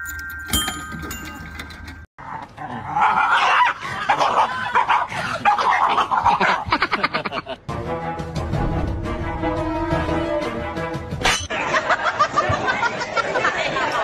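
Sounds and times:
ringing chime tones: 0.0s - 2.1s.

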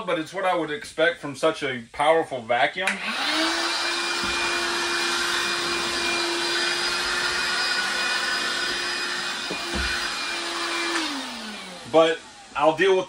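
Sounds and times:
hand vacuum running: 3.0s - 13.0s.

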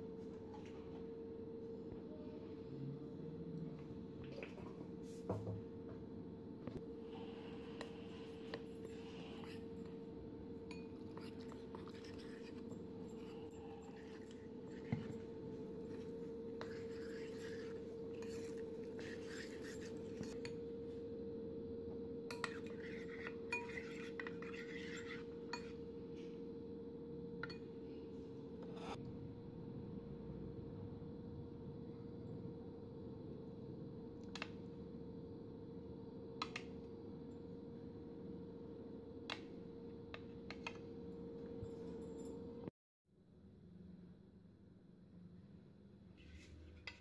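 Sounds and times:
spoon clinking against bowl: 10.6s - 20.7s, 22.3s - 25.8s
spoon stirring batter in bowl: 10.6s - 21.0s, 22.3s - 25.8s.

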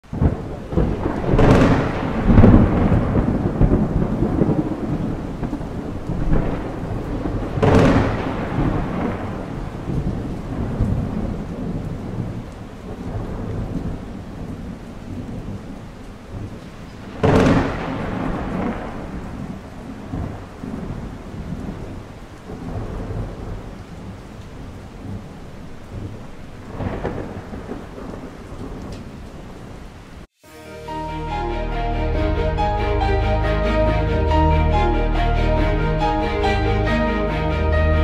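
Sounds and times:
thunderclaps rolling into rumble: 0.0s - 30.0s
rain hiss: 0.0s - 38.0s.

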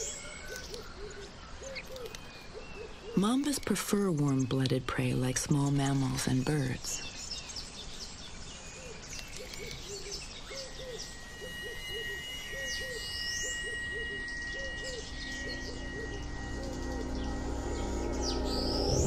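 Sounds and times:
bird chirps and whistles: 8.8s - 19.0s
low hooting bird call: 8.8s - 19.0s
thin steady high tone: 9.0s - 19.0s.

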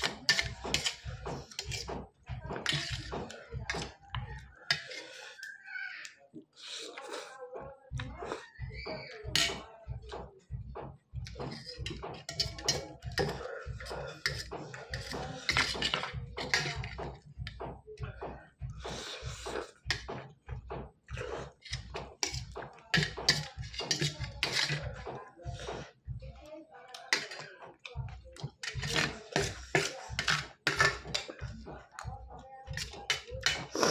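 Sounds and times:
fork and spoon clinking on plate: 0.0s - 1.9s, 9.4s - 9.7s, 11.5s - 13.4s, 14.2s - 17.0s, 21.6s - 24.8s, 27.0s - 27.4s, 28.5s - 31.3s.

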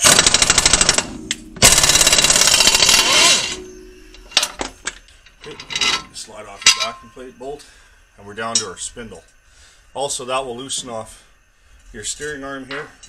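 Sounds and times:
impact wrench hammering: 0.0s - 3.6s
metal clinks: 0.5s - 7.3s.

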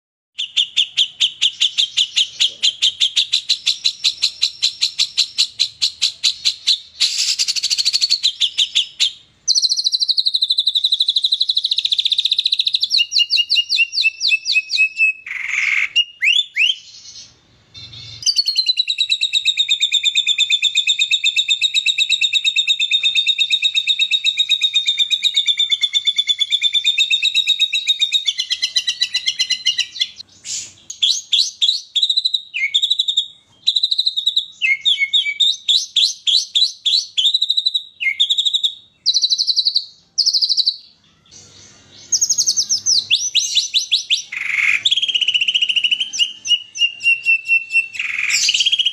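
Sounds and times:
songbird singing trills: 0.4s - 48.9s.

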